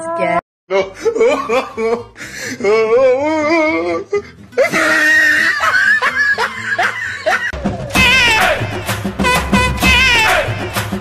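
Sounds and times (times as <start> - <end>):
people laughing: 0.7 - 2.8, 4.6 - 8.6
high wavering laugh: 0.7 - 8.3.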